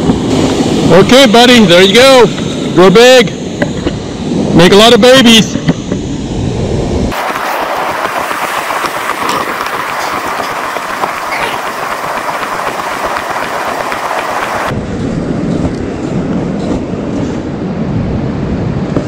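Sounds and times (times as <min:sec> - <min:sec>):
ocean surf hissing on a beach: 0:00.0 - 0:14.7.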